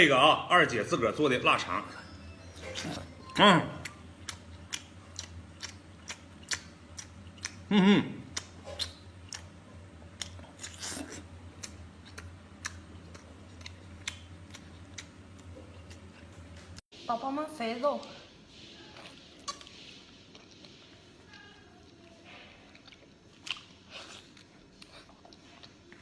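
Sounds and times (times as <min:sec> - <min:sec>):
person chewing with mouth smacks: 0:03.8 - 0:16.8, 0:19.0 - 0:26.0.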